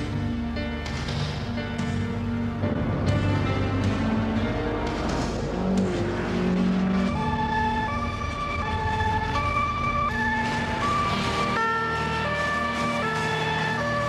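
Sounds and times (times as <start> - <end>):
two-tone siren: 6.7 - 14.0.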